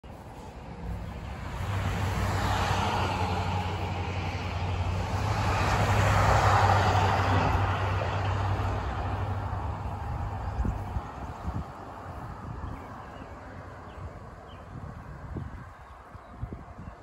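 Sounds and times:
vehicle passing by: 0:00.0 - 0:15.8.

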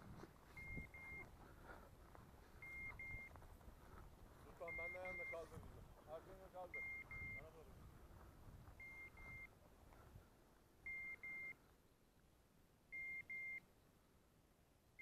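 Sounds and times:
faint wind noise: 0:00.0 - 0:15.0
high double beeps: 0:00.6 - 0:01.3, 0:02.6 - 0:03.3, 0:04.6 - 0:05.5, 0:06.7 - 0:07.6, 0:08.8 - 0:09.5, 0:10.8 - 0:11.6, 0:12.9 - 0:13.6.

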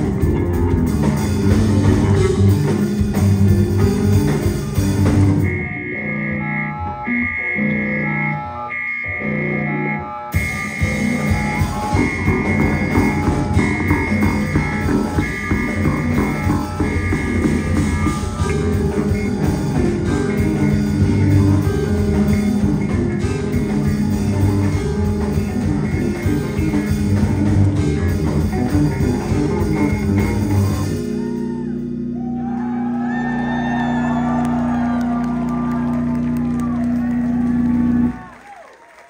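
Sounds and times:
live rock band playing: 0:00.0 - 0:38.2
crowd cheering: 0:10.4 - 0:39.0.

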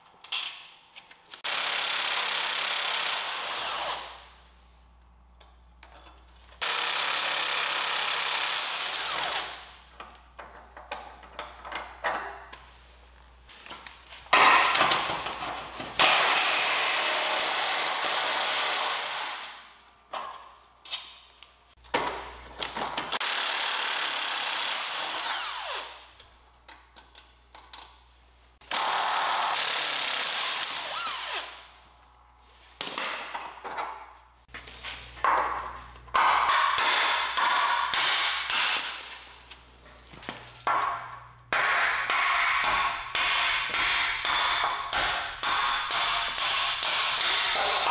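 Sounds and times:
sharp metal knocks: 0:40.7 - 0:47.9.

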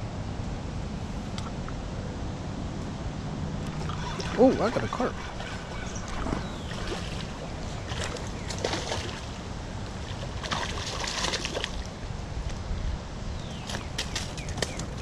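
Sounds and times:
fish splashing in water: 0:03.7 - 0:12.0.

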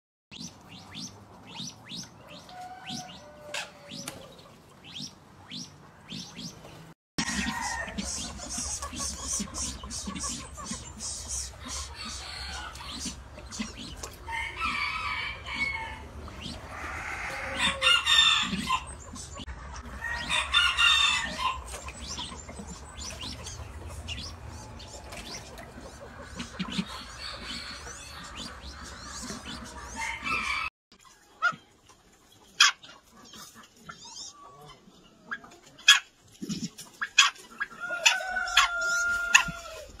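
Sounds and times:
ducks calling: 0:07.2 - 0:30.7.

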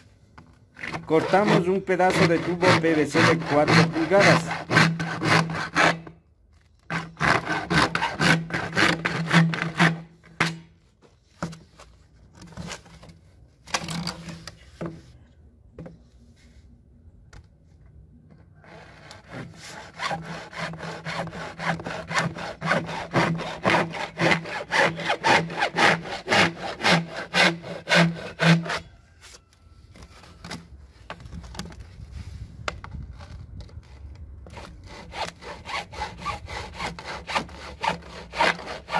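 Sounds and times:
hacksaw cutting plastic pipe: 0:00.7 - 0:06.2, 0:06.8 - 0:10.8, 0:18.6 - 0:29.0, 0:33.6 - 0:38.9.

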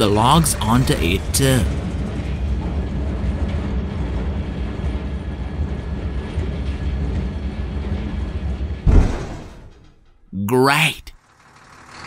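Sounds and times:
crane mechanical rumble: 0:00.0 - 0:12.0
logs landing with heavy thud: 0:08.9 - 0:09.6.

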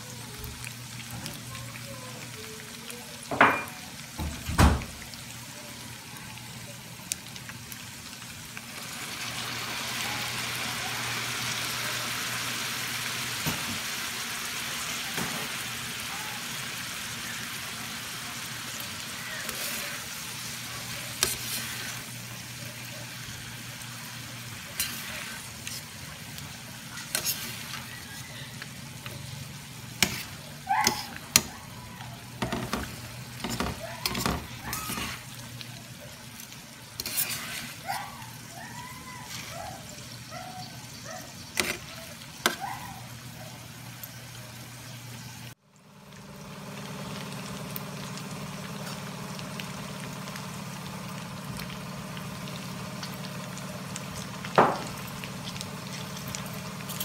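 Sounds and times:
pan sizzling: 0:00.0 - 0:57.0
metal spatula scraping pan: 0:20.8 - 0:22.1, 0:24.7 - 0:25.8, 0:27.0 - 0:28.2, 0:30.0 - 0:31.5, 0:32.4 - 0:35.3, 0:37.0 - 0:37.9, 0:41.6 - 0:42.6.

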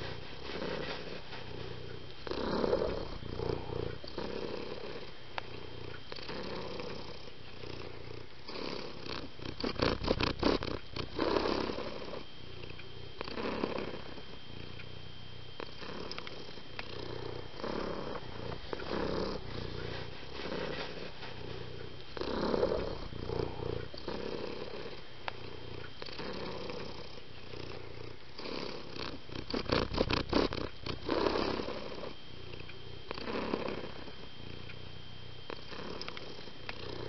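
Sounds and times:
cat purring: 0:00.0 - 0:37.0.

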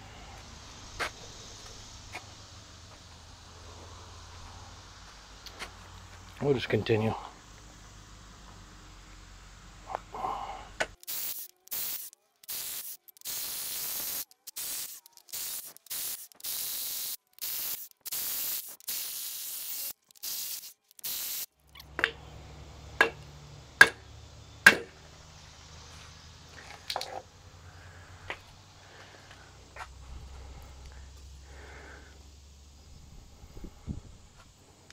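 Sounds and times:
compressed air tool hissing: 0:00.0 - 0:05.9, 0:09.9 - 0:21.5, 0:27.6 - 0:32.2
sharp metal knocks: 0:21.9 - 0:22.2, 0:23.0 - 0:23.2, 0:23.8 - 0:24.0, 0:24.6 - 0:25.0.

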